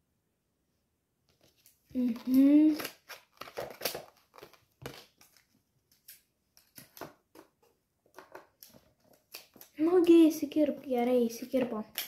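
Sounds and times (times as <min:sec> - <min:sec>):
plastic crinkling: 0:01.4 - 0:07.2
scissors snipping plastic: 0:02.0 - 0:05.4.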